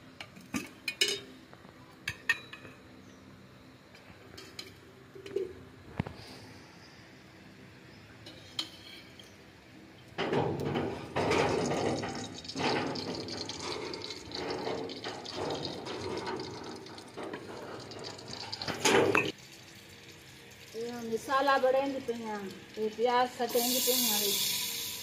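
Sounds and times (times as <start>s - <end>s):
water running and splashing: 10.6s - 25.0s.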